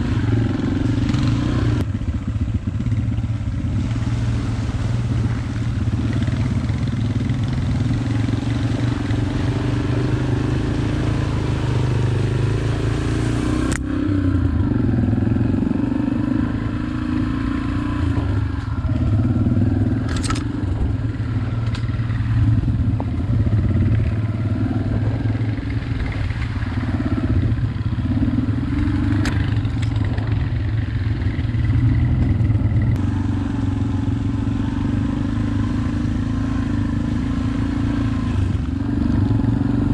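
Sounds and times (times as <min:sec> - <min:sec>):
dirt bike engine running: 0:00.0 - 0:39.9
clicks and clatter from rough trail: 0:19.9 - 0:24.2, 0:25.0 - 0:27.0, 0:28.7 - 0:33.1.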